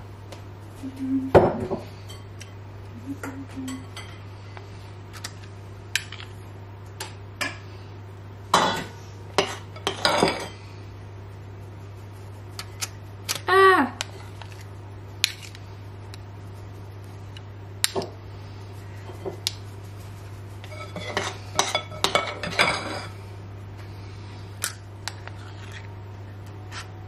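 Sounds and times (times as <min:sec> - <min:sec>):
steady low hum: 0:00.0 - 0:27.0
metal spoons clinking and scraping: 0:20.6 - 0:23.1.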